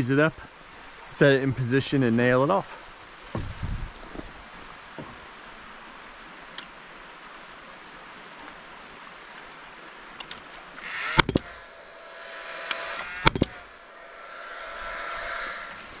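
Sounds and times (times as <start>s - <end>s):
nail gun fan whirring: 10.8s - 16.0s
nail gun firing: 11.1s - 11.6s, 13.2s - 13.6s.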